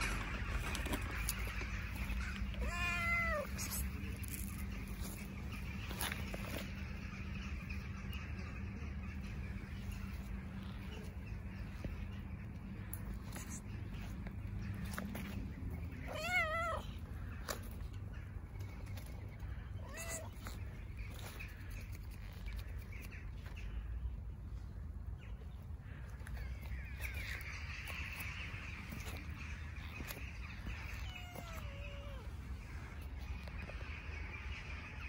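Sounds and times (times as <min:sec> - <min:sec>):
steady low rumble: 0:00.0 - 0:35.0
cat meowing: 0:02.6 - 0:03.7, 0:16.1 - 0:17.0, 0:19.8 - 0:20.5, 0:30.9 - 0:32.3.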